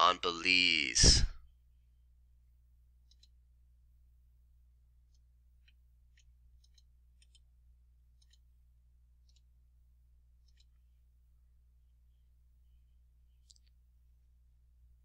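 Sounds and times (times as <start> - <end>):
faint computer clicks: 3.0 - 3.4.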